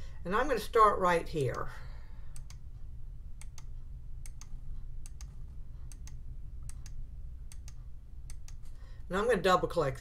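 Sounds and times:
faint low hum: 0.0 - 10.0
computer mouse clicking: 2.4 - 2.6, 3.4 - 8.8.

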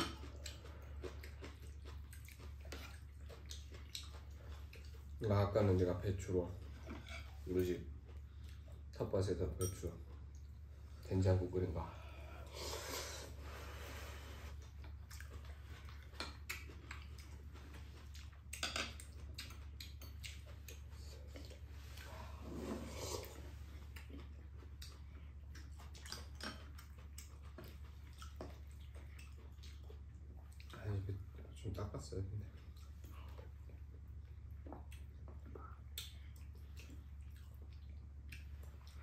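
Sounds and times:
slurping and chewing: 0.0 - 5.6, 12.4 - 31.4, 32.5 - 39.0.

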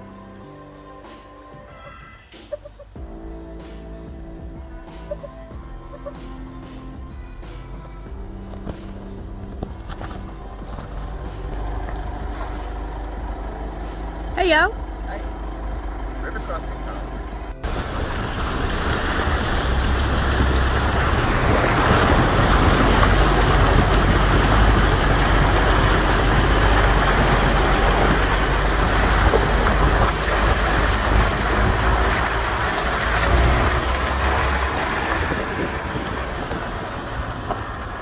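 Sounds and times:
low engine rumble: 3.0 - 38.0
water rushing and splashing: 17.6 - 38.0.

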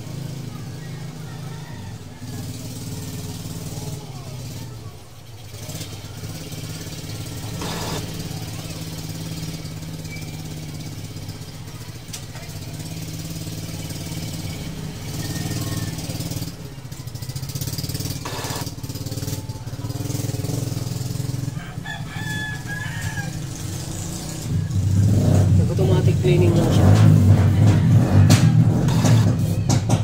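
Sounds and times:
printer motor humming: 7.5 - 8.0, 18.2 - 18.8, 28.9 - 29.3.

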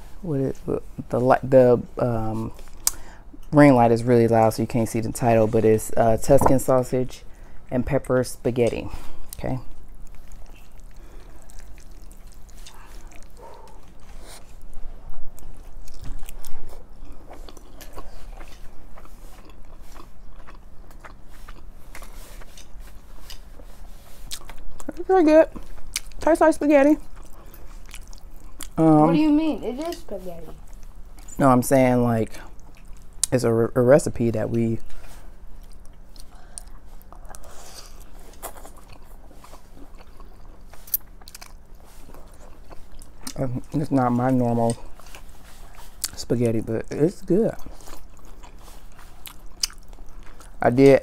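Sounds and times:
faint low hum: 0.0 - 51.0
wet chewing: 9.1 - 29.1, 32.3 - 33.4, 34.4 - 51.0.

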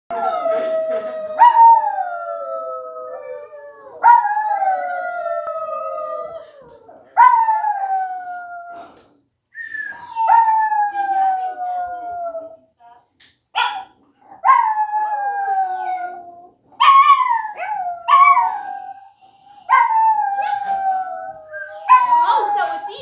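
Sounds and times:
dog howling: 0.1 - 8.8, 14.4 - 19.1, 19.7 - 23.0.

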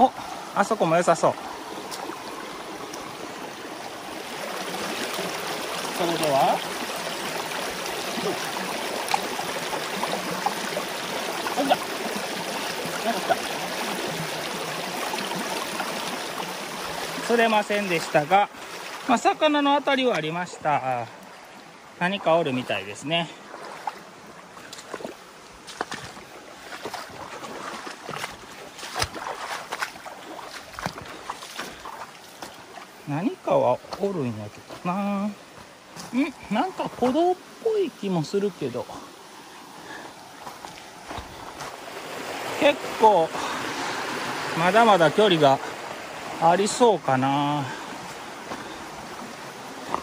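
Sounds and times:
stream running over rocks: 0.0 - 50.0
footsteps on stones: 24.6 - 32.6, 40.4 - 41.8.

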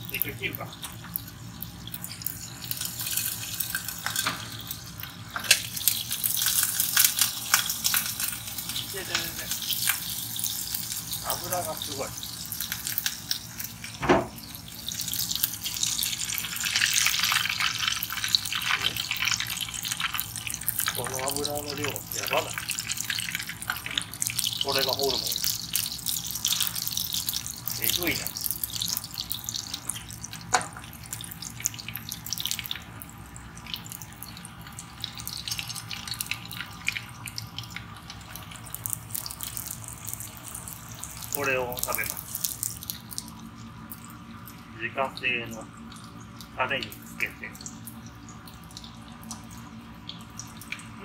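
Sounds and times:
oil sizzling and popping: 0.0 - 51.0
thump: 14.0 - 14.4.

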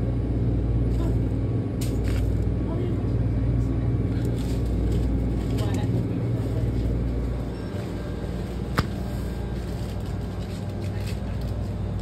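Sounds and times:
refrigerated cooler humming: 0.0 - 12.0.

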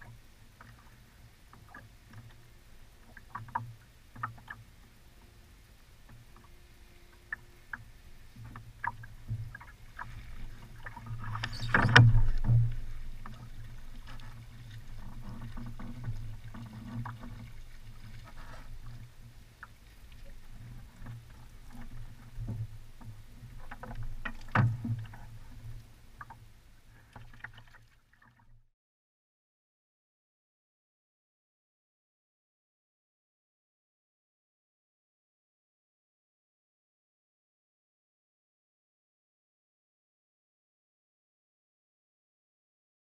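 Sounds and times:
water lapping against boat hull: 0.0 - 28.6
knocks and clicks of fishing gear: 11.3 - 13.5, 22.5 - 25.3.

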